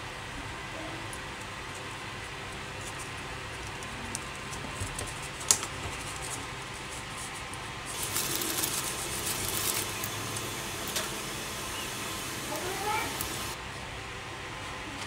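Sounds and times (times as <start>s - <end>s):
paper tissue rustling: 5.0s - 13.6s
steady hiss: 7.1s - 13.6s.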